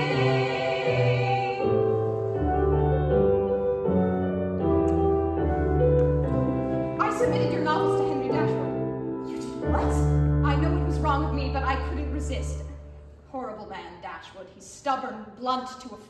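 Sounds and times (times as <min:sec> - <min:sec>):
person singing with vibrato: 0:00.0 - 0:02.1
piano chords: 0:00.0 - 0:13.3.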